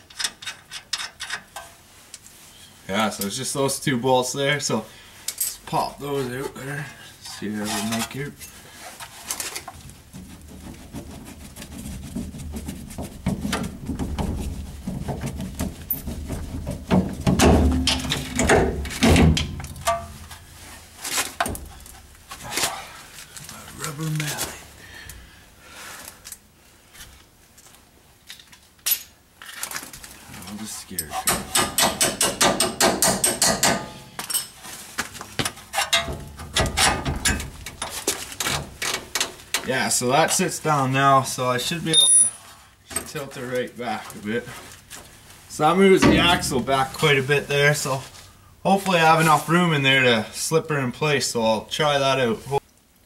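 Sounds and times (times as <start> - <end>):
heavy metal knocks and clanks: 12.1 - 20.4, 31.3 - 34.0, 35.8 - 37.9, 46.0 - 46.8
metal clinks: 41.9 - 42.4
metal tool clinking on bolt: 41.9 - 43.1.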